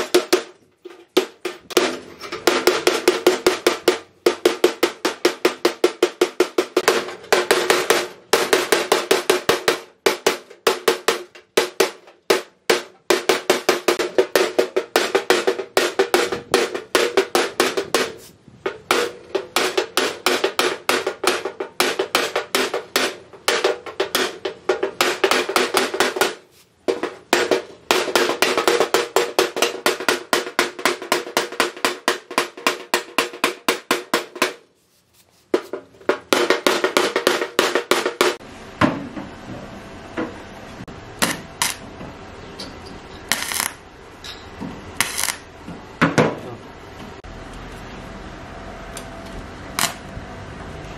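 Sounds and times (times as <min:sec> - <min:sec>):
hammer blows on sheet metal: 0:00.0 - 0:34.7.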